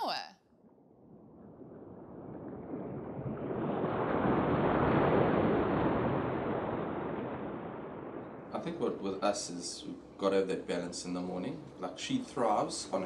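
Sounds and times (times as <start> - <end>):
ocean waves breaking: 1.2 - 9.0.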